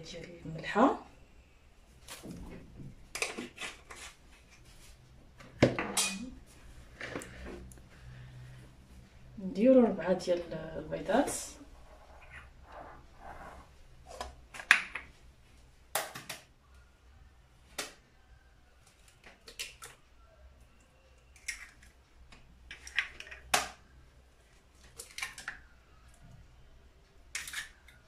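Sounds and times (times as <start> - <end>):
eggs cracking against bowl: 19.2 - 20.0, 21.3 - 23.8, 25.0 - 25.7, 27.3 - 28.0.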